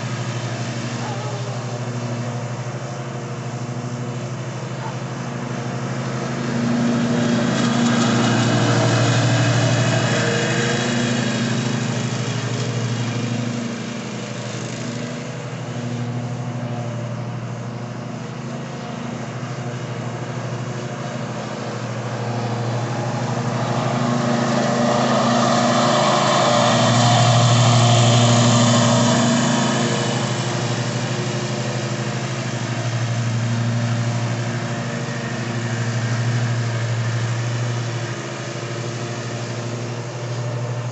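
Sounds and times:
lawn mower engine running: 0:00.0 - 0:40.9
mower deck cutting grass: 0:00.0 - 0:40.9.

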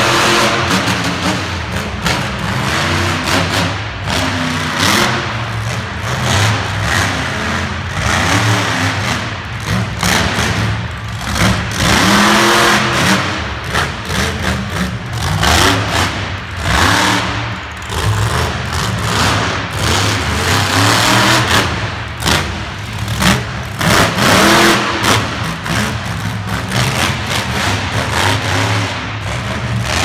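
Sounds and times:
truck engine revving: 0:00.0 - 0:30.0.

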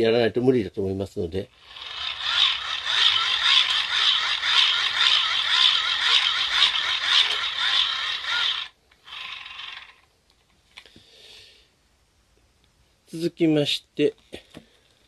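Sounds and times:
hand-crank generator whirring: 0:01.6 - 0:10.1.

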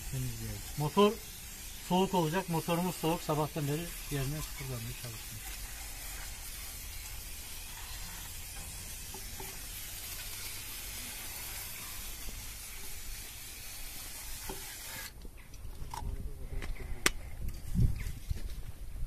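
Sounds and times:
aerosol spray can hissing: 0:00.0 - 0:15.1.

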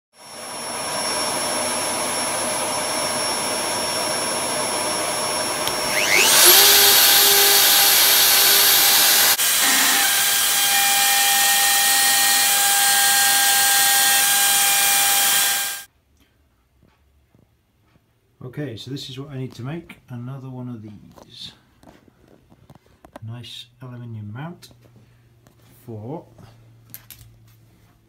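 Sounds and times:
router motor whine: 0:00.2 - 0:15.9.

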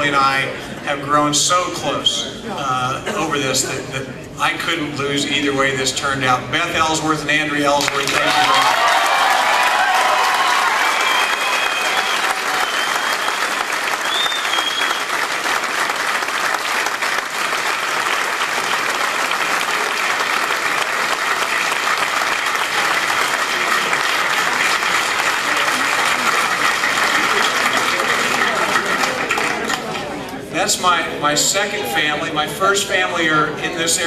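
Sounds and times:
crowd applauding: 0:07.8 - 0:30.2.

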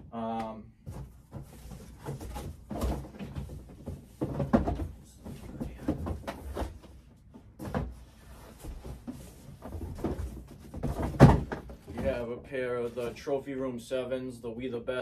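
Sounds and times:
cardboard boxes knocking and thumping: 0:00.8 - 0:12.3
cardboard rustling: 0:07.6 - 0:12.2.

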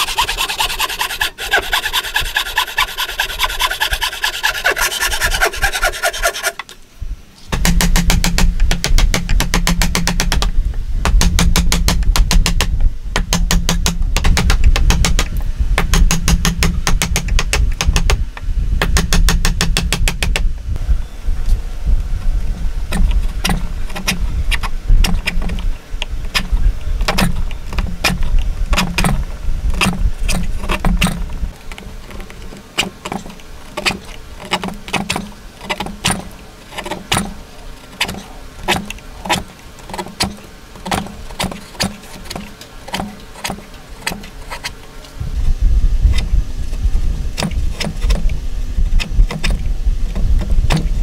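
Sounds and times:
low rumble: 0:45.2 - 0:51.0.

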